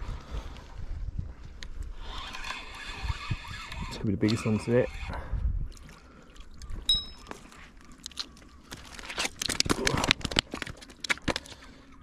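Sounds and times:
brief high ping: 0:06.9 - 0:07.3.

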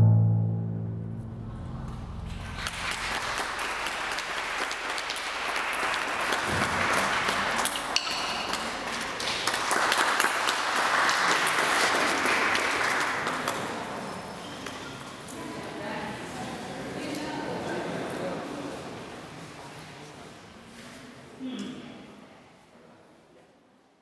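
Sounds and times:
audience applauding: 0:02.3 - 0:13.8.

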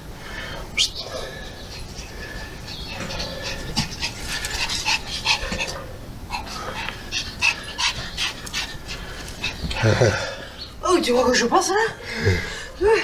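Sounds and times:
small dog panting: 0:01.2 - 0:10.2.

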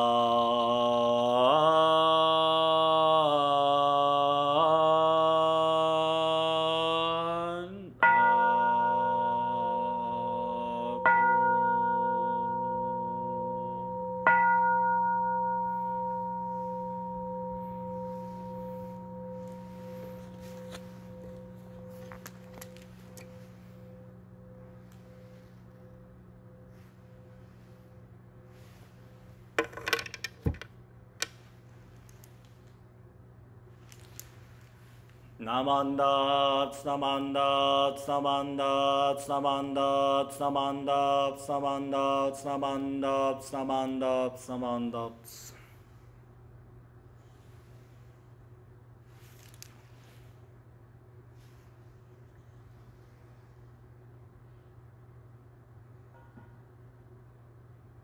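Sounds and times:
person chanting a held note: 0:00.0 - 0:29.4
faint steady hum: 0:00.0 - 0:58.0
bowl bell ringing: 0:08.0 - 0:29.5
clinks and rattles: 0:20.2 - 0:23.6.

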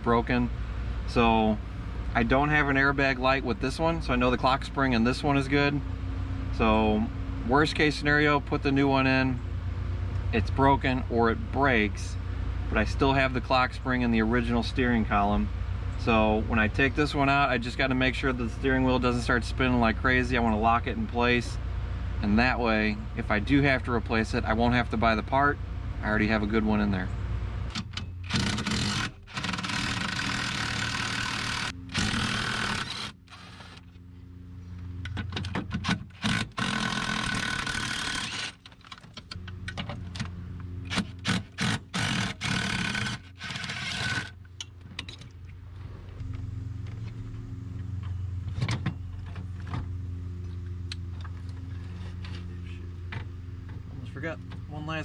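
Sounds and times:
cordless power tool running: 0:28.3 - 0:33.9, 0:36.1 - 0:38.6, 0:40.8 - 0:44.4.

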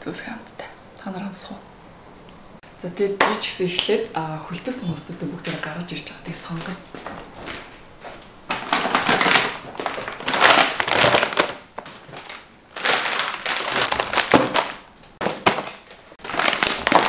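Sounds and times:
plastic bags crinkling: 0:06.4 - 0:17.0.

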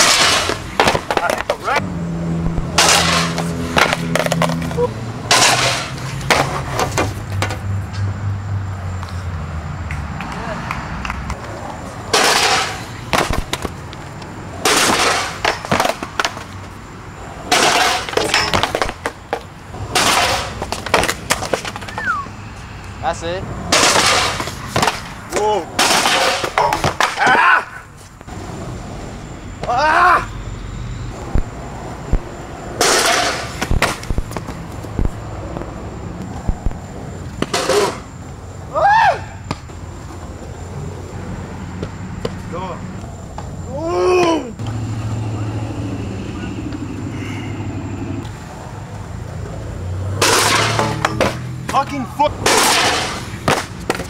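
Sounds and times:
skateboard clacks on concrete: 0:00.0 - 0:01.8, 0:02.7 - 0:07.6, 0:09.9 - 0:16.7, 0:17.4 - 0:22.2, 0:23.8 - 0:27.4, 0:32.1 - 0:38.1, 0:52.4 - 0:54.0
skateboard scraping rush: 0:00.0 - 0:07.7, 0:23.7 - 0:27.1, 0:27.7 - 0:29.3, 0:31.2 - 0:35.3, 0:36.3 - 0:38.3, 0:52.3 - 0:54.0
person shouting: 0:27.2 - 0:27.8, 0:29.7 - 0:30.3, 0:43.7 - 0:44.6.

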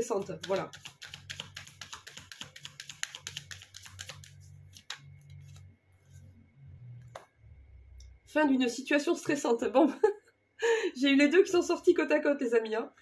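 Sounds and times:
cards being shuffled: 0:00.2 - 0:06.2.

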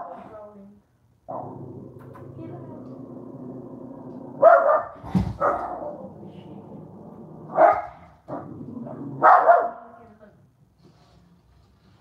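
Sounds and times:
dog barking: 0:04.4 - 0:05.9, 0:07.5 - 0:08.0, 0:09.2 - 0:09.9.

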